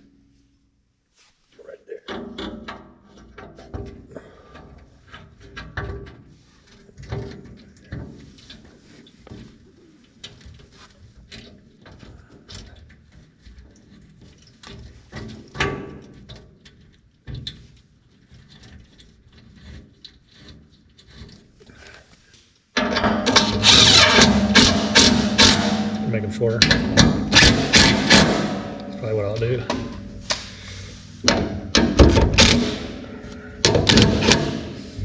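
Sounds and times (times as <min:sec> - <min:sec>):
metal bolts clinking: 0:22.8 - 0:35.0
steady hum: 0:23.0 - 0:35.0
loud rapid rattling: 0:23.2 - 0:30.6.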